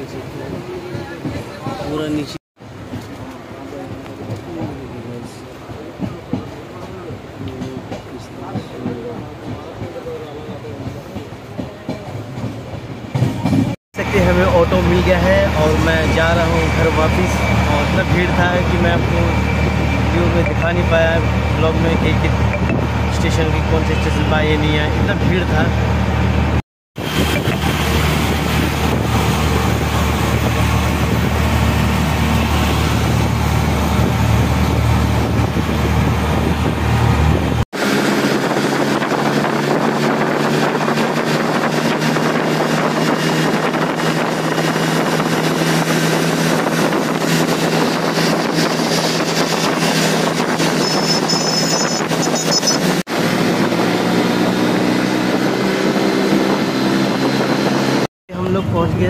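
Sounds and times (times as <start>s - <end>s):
auto-rickshaw engine running: 27.0s - 55.0s
wind rushing over microphone: 27.0s - 59.0s.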